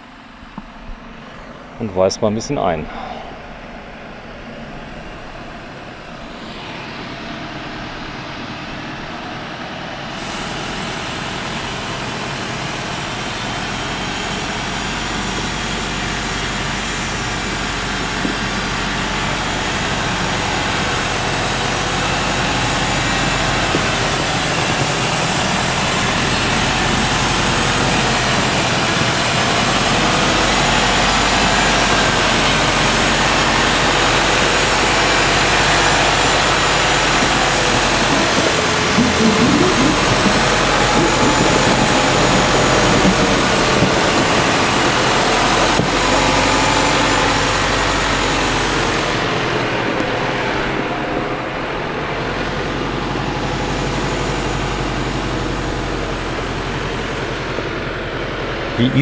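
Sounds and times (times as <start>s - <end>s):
diesel truck engine running: 0.0s - 59.0s
tyres crawling over gravel: 23.3s - 46.4s.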